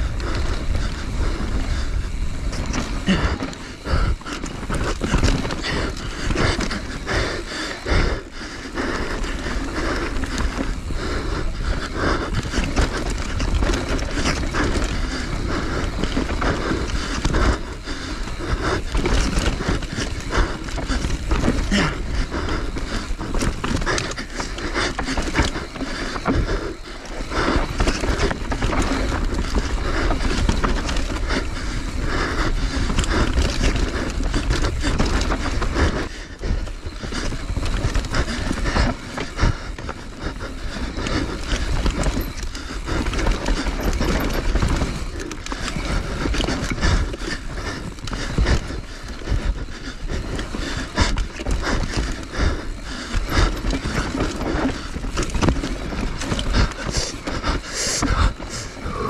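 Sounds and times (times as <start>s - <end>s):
tyre and air rumble: 0.0s - 59.0s
bike clattering over rocks: 2.5s - 7.0s, 36.7s - 48.8s, 50.2s - 58.4s.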